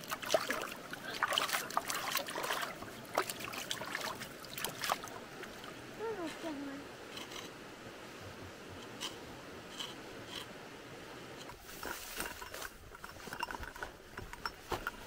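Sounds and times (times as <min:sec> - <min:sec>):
vine scraping against stone: 0:07.0 - 0:07.6, 0:08.8 - 0:10.6, 0:11.4 - 0:15.0.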